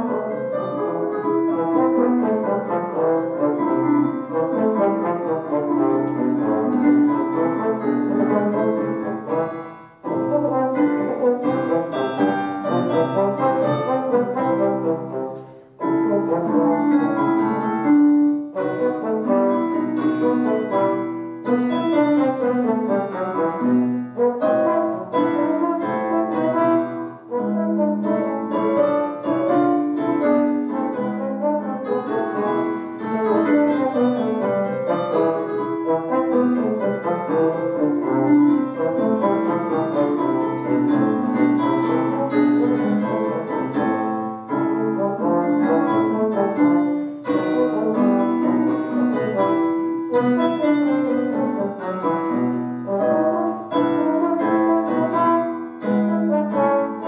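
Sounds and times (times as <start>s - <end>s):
piano accompaniment: 0.0s - 57.0s
trombone melody: 0.0s - 57.0s.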